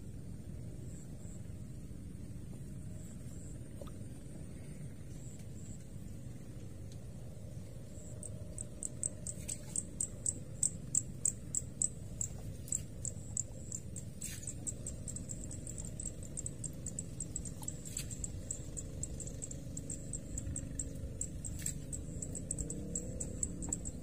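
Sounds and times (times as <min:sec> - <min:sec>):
steady low rumble: 0:00.0 - 0:24.0.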